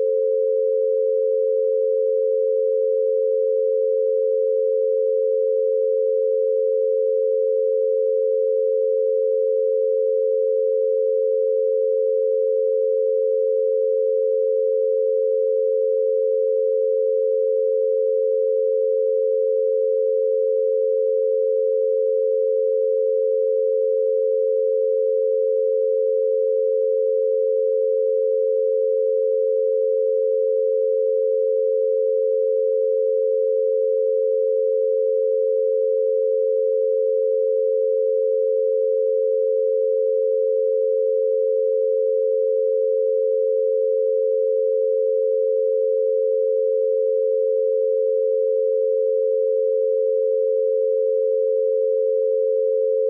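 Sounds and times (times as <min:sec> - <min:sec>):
steady sine tones: 0:00.0 - 0:53.0.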